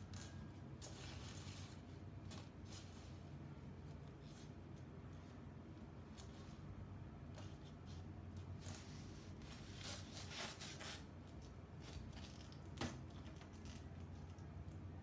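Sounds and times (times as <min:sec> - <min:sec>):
paper rustling and scraping: 0:07.3 - 0:12.7.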